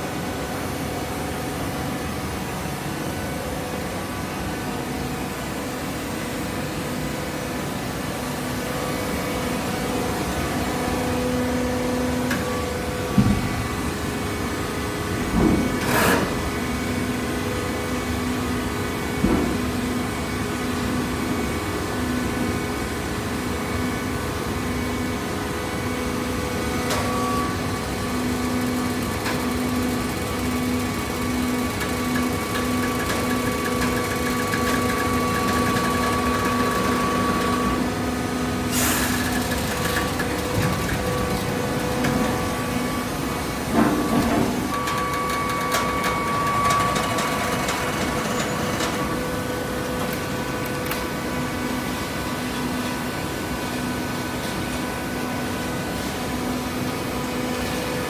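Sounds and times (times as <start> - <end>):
hydraulic baler humming: 26.2 - 53.7.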